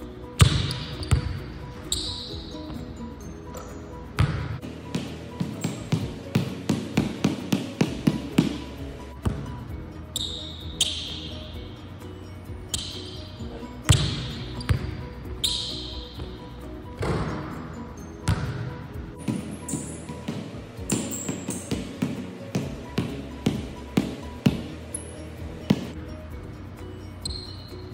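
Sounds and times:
background music: 0:00.0 - 0:27.9
basketball bouncing on hardwood floor: 0:00.4 - 0:01.4, 0:04.2 - 0:08.6, 0:09.2 - 0:09.6, 0:13.9 - 0:15.6, 0:17.0 - 0:17.6, 0:18.2 - 0:24.7, 0:25.7 - 0:25.9.

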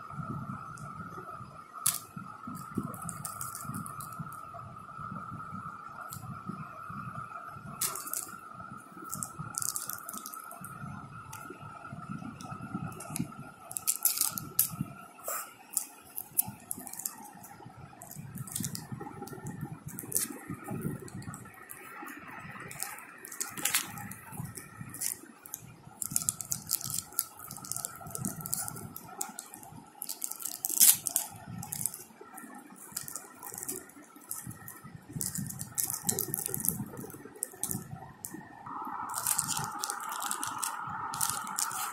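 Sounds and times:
faint steady hum: 0:00.0 - 0:41.9
cellophane crinkling: 0:01.8 - 0:04.4, 0:07.8 - 0:08.4, 0:09.0 - 0:10.7, 0:12.9 - 0:37.9, 0:39.1 - 0:41.9.

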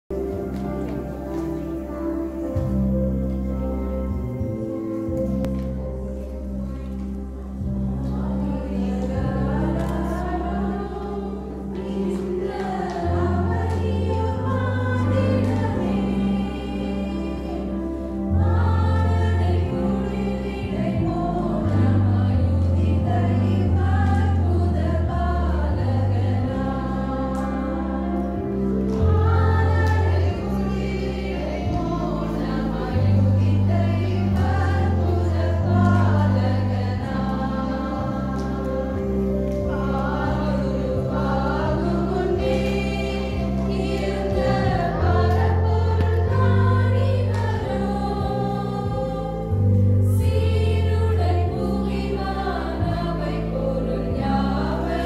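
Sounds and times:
women singing a hymn: 0:00.2 - 0:55.0.

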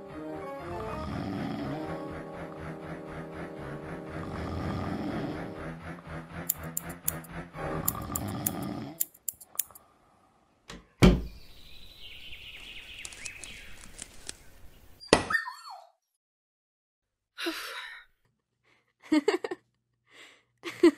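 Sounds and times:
door slamming shut: 0:10.7 - 0:11.4.

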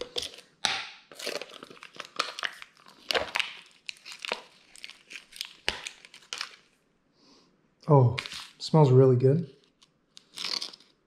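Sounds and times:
packaging crinkling and tearing: 0:01.1 - 0:06.8, 0:08.2 - 0:08.7, 0:09.6 - 0:11.0.

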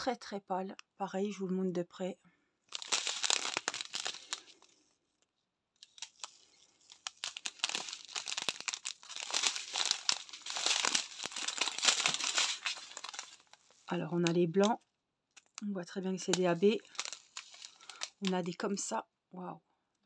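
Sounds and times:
plastic bags crinkling: 0:02.7 - 0:05.0, 0:05.8 - 0:14.7, 0:15.4 - 0:18.6.

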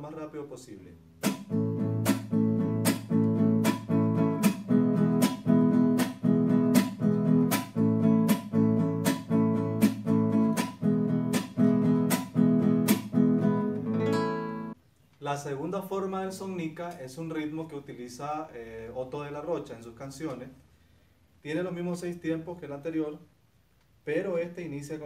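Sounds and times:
classical guitar strumming: 0:01.0 - 0:14.8
percussive slap on guitar strings: 0:01.2 - 0:13.2.

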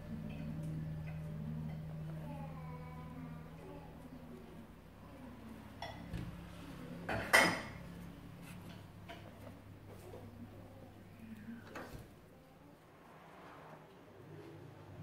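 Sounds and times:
faint steady hum: 0:00.0 - 0:15.0
kitchenware clinking: 0:07.1 - 0:07.8.

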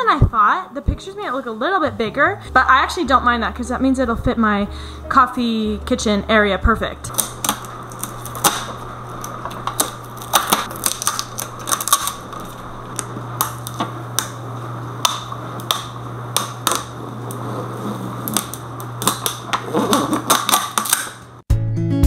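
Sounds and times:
steady low hum: 0:00.0 - 0:21.4
plastic film peeling and crackling: 0:07.1 - 0:21.4.

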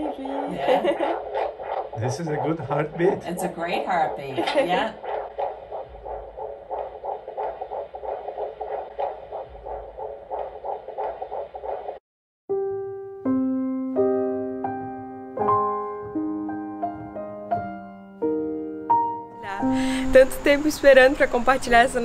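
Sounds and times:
fetal heartbeat whooshing pulse: 0:00.0 - 0:12.0, 0:19.4 - 0:22.0
slow piano music: 0:12.5 - 0:20.2.

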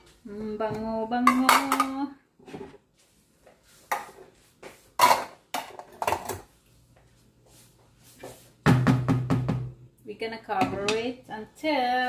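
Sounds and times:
pans and utensils clattering: 0:05.0 - 0:06.5.

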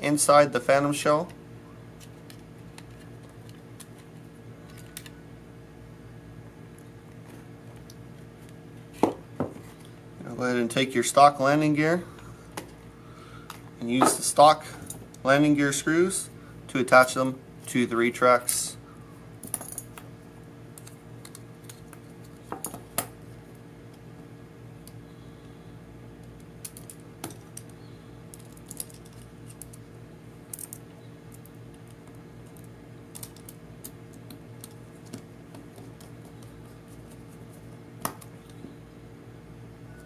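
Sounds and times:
steady low hum: 0:00.0 - 0:40.0
small parts clicking and tapping: 0:26.2 - 0:29.9, 0:30.5 - 0:36.5.

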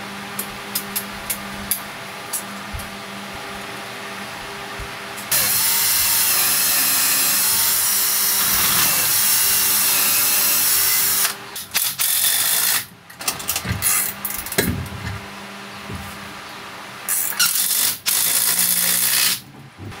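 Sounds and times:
cordless drill boring into wood: 0:05.3 - 0:11.3, 0:17.2 - 0:19.4
scattered clicks and knocks: 0:13.1 - 0:15.2.

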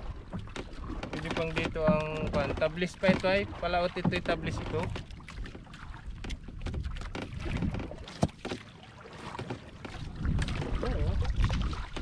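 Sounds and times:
water moving around boat: 0:00.0 - 0:12.0
wind buffeting microphone: 0:09.9 - 0:12.0.

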